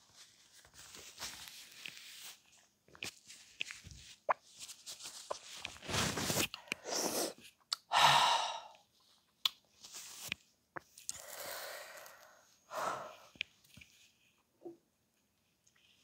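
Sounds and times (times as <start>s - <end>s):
tissue rustling: 0.0s - 6.5s
man breathing heavily and sighing: 7.9s - 8.8s.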